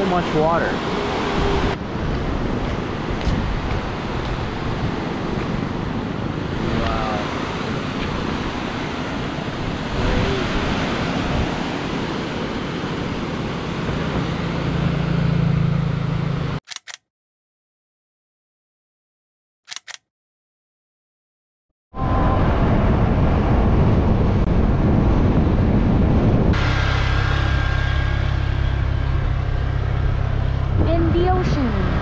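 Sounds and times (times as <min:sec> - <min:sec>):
low hum: 0:22.0 - 0:32.0.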